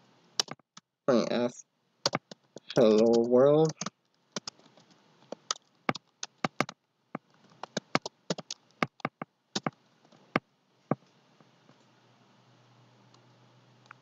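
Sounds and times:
keyboard keystrokes clicking: 0:02.1 - 0:04.6, 0:07.6 - 0:09.7.

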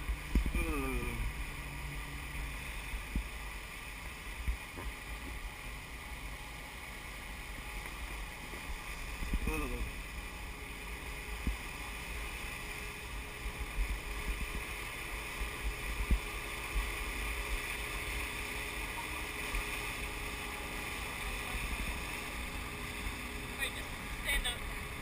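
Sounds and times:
boat wake hiss: 0:00.0 - 0:25.0.

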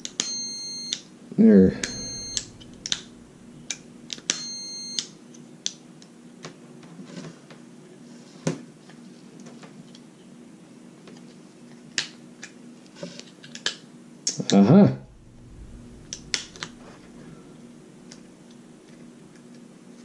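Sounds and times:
multimeter continuity beep: 0:00.2 - 0:01.0, 0:01.7 - 0:05.1.

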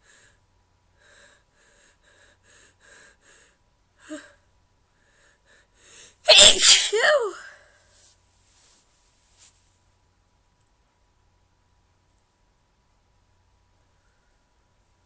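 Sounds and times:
woman sneezing: 0:06.3 - 0:07.6.

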